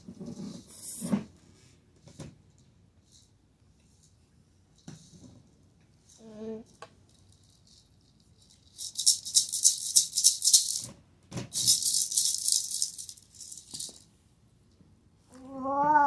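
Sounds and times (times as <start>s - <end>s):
plastic toy maraca shaking: 6.1s - 10.9s, 11.5s - 14.1s.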